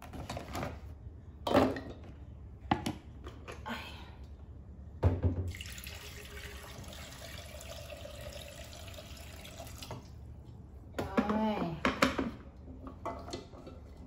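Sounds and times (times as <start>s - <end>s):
kitchen tap running: 5.5s - 10.1s.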